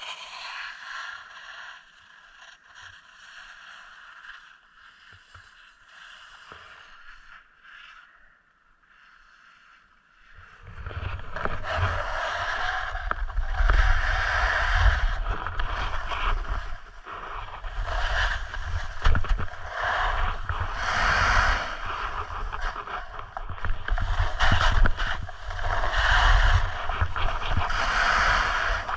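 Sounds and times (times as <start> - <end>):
snowboard scraping over packed snow: 0.0 - 8.3, 9.0 - 28.9
wind buffeting microphone: 10.6 - 28.9.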